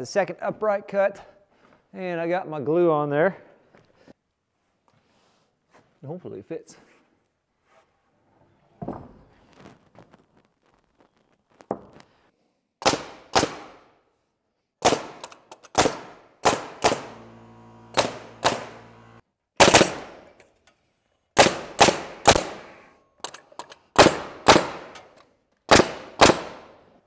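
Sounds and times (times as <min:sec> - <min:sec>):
hammer striking timber: 0:16.4 - 0:20.3
steady mechanical hum: 0:16.6 - 0:19.2.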